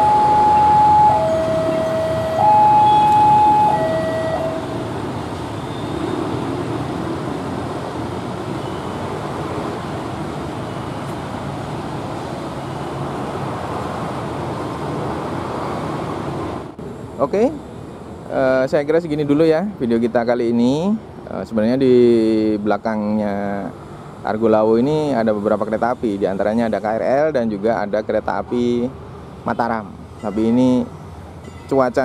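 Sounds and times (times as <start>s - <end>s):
level crossing two-tone alarm: 0.0s - 4.8s.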